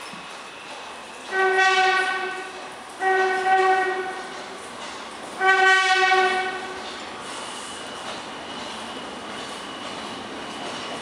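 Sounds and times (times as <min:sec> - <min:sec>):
train rumble: 0:00.0 - 0:11.0
train horn blasts: 0:01.3 - 0:04.3, 0:05.4 - 0:06.8.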